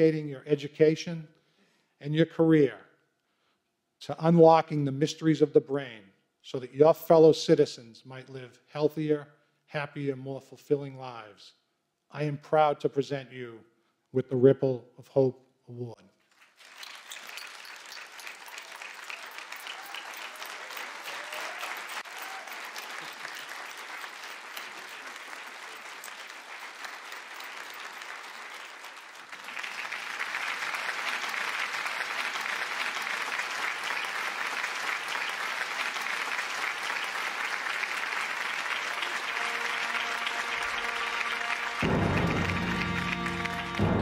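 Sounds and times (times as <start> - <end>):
audience applauding: 16.3 - 44.0.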